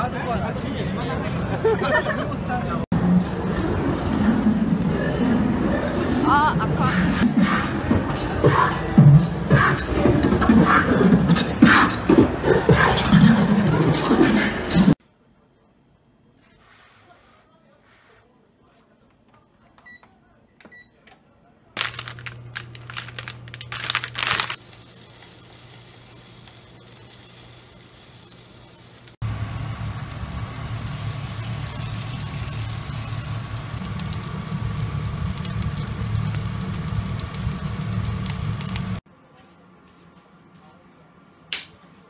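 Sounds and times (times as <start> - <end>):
dumplings sizzling in frying pan: 21.9 - 39.0
low steady hum: 29.2 - 39.4.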